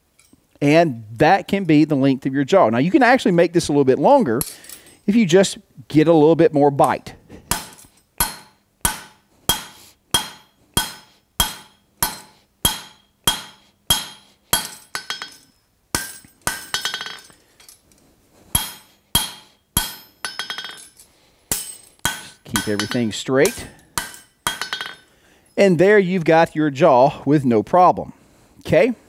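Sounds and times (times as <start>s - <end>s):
hammer striking metal on anvil: 7.5s - 17.3s, 18.5s - 25.1s.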